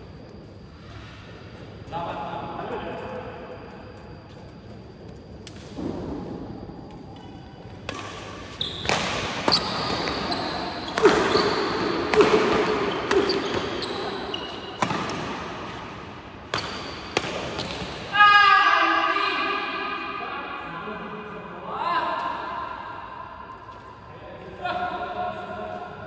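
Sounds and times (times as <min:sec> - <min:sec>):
rackets hitting shuttlecock: 0:06.8 - 0:18.1
shoes squeaking on court floor: 0:07.2 - 0:15.9, 0:16.5 - 0:18.0.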